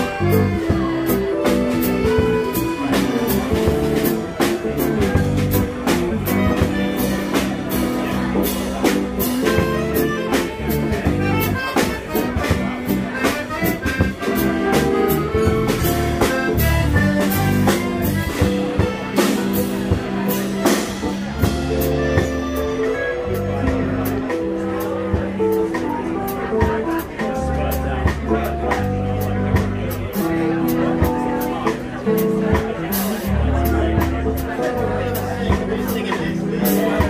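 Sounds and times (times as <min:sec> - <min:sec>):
accordion: 0:00.0 - 0:37.0
drum kit: 0:00.0 - 0:37.0
electric guitar: 0:00.0 - 0:37.0
keyboard notes: 0:00.0 - 0:37.0.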